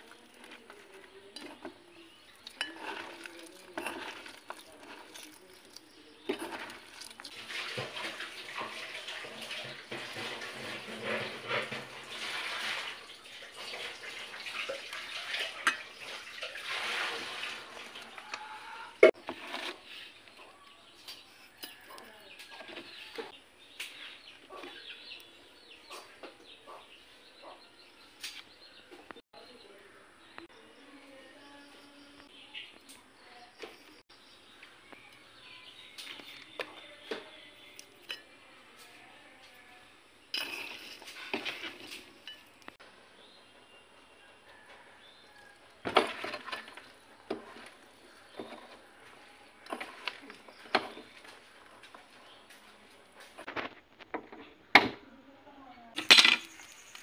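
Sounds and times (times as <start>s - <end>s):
hand squishing food: 0.0s - 9.8s.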